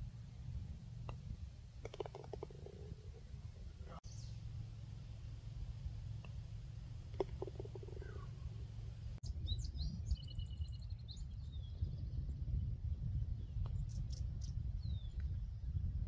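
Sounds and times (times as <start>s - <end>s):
low steady rumble: 0.0s - 16.0s
songbirds chirping: 0.1s - 16.0s
putter striking golf ball: 1.0s - 3.2s, 6.2s - 8.3s.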